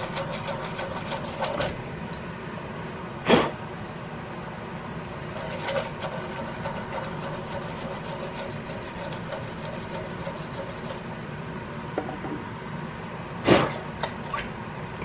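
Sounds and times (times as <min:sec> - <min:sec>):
sandpaper rubbing on metal: 0:00.0 - 0:01.7, 0:05.3 - 0:11.0.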